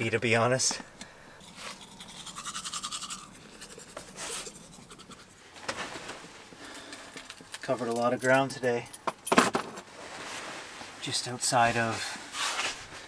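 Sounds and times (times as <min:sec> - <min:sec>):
fast scratchy rubbing: 0:01.5 - 0:05.4
short rustle: 0:09.8 - 0:13.0.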